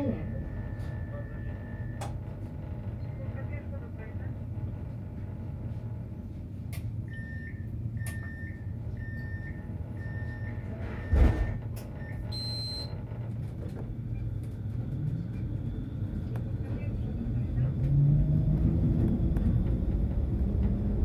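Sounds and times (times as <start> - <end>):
tram low hum: 0.0 - 21.0
tram doors thumping shut: 11.1 - 11.8.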